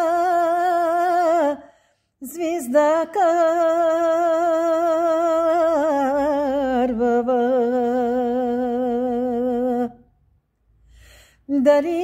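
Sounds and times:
woman singing unaccompanied: 0.0 - 10.1, 11.5 - 12.0.

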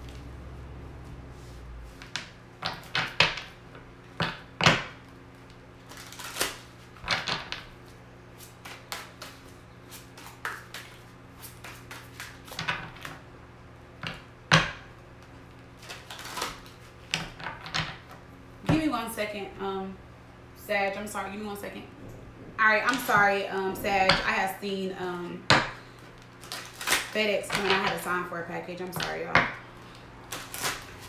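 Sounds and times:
cards being shuffled: 8.4 - 13.1.

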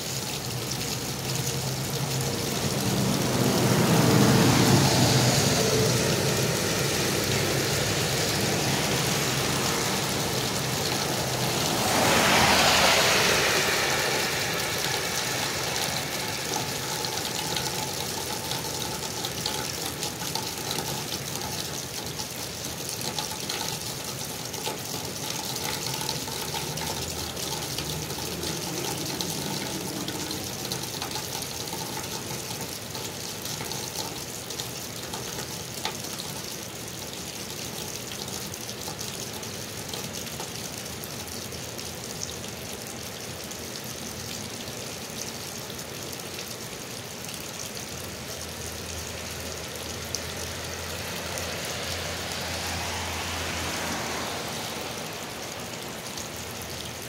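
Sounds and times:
steady rain falling: 0.0 - 57.0
water gushing from drain pipe: 0.0 - 57.0
hiss: 11.3 - 17.6.

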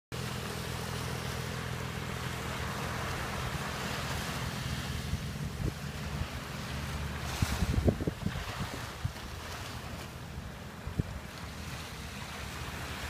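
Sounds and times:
distant engine droning: 0.1 - 13.0
waves washing: 0.2 - 13.0
wind buffeting microphone: 4.9 - 13.0.

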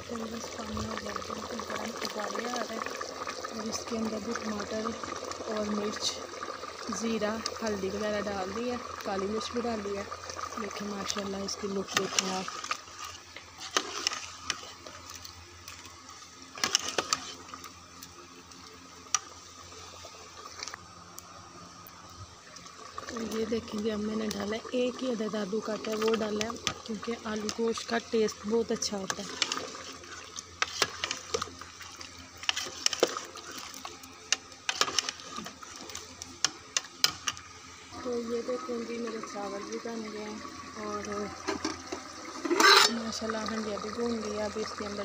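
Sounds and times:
food sizzling: 0.0 - 45.0
water boiling hiss: 0.0 - 45.0
metal ladle scraping pot: 10.8 - 15.0, 16.5 - 17.5, 28.9 - 31.6, 32.4 - 33.8, 34.6 - 36.0, 41.4 - 43.1.

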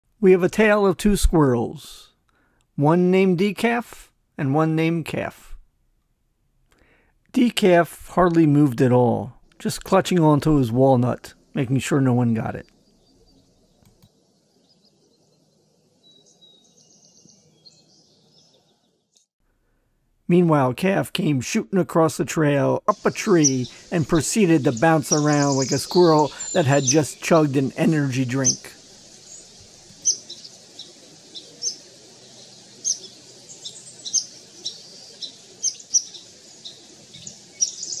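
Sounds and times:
faint outdoor background: 0.0 - 38.0
distant birds chirping: 9.5 - 19.3, 22.9 - 38.0.

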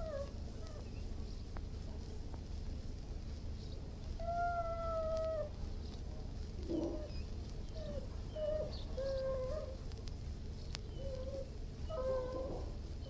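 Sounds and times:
dog whining: 0.0 - 0.9, 4.1 - 5.5, 6.6 - 9.8, 10.9 - 12.7
low steady hum: 0.0 - 13.0
dog whimper: 6.7 - 9.8, 10.9 - 12.7.

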